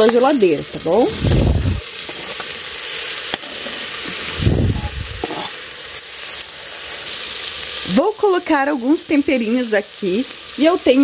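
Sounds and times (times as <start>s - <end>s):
vegetables sizzling in hot fat: 0.0s - 11.0s
low bumps: 1.1s - 1.8s.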